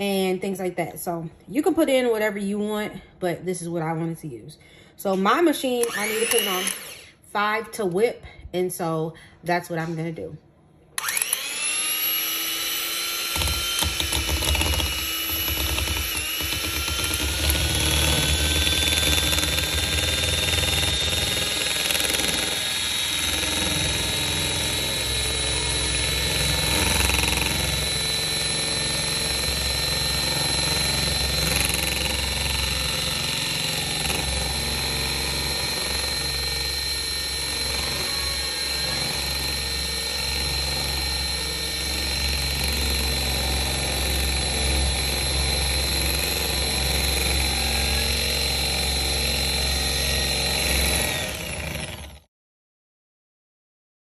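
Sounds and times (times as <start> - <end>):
electric hand mixer whining: 5.8 - 7.1, 11.0 - 52.3.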